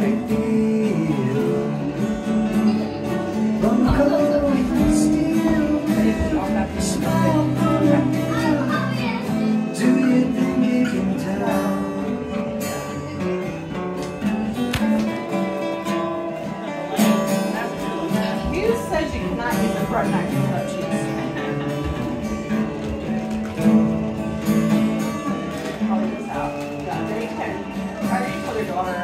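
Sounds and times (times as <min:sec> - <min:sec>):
acoustic guitars strummed and picked: 0:00.0 - 0:29.0.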